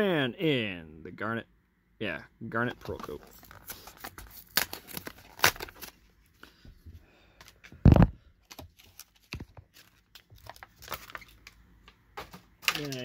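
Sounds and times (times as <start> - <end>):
plastic blister pack crackling: 8.4 - 11.6, 12.6 - 13.0.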